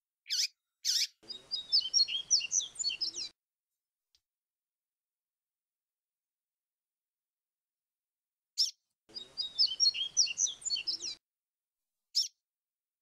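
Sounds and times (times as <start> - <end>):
bird whistling song: 0.3 - 3.3, 8.6 - 11.2.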